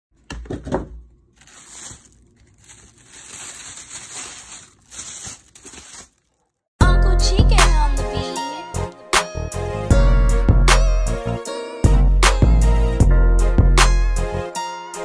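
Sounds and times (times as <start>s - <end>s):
crackling rustling noise: 1.3s - 6.7s
music: 6.8s - 15.0s.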